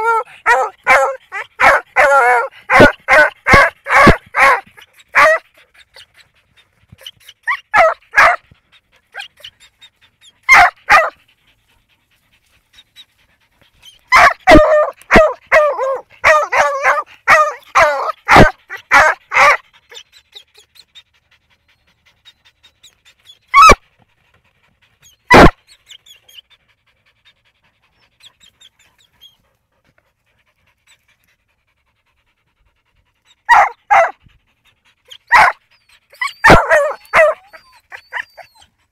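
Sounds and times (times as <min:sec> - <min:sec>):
dog barking: 0:00.5 - 0:04.6, 0:07.7 - 0:08.4, 0:10.5 - 0:11.2, 0:14.1 - 0:19.6, 0:25.3 - 0:25.6, 0:33.5 - 0:34.2, 0:35.3 - 0:35.6, 0:36.4 - 0:37.4.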